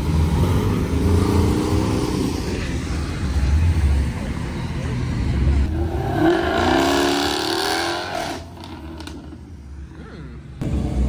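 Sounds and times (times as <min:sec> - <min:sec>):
distant engine: 0:00.0 - 0:09.9
sports car engine revving: 0:05.5 - 0:09.4.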